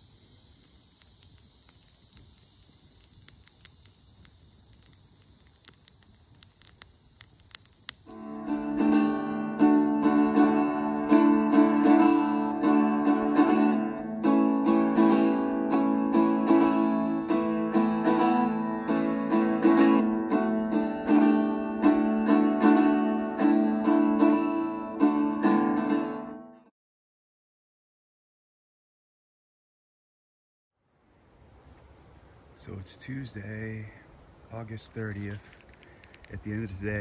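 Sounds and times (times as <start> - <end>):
acoustic guitar strumming chords: 8.1 - 26.7.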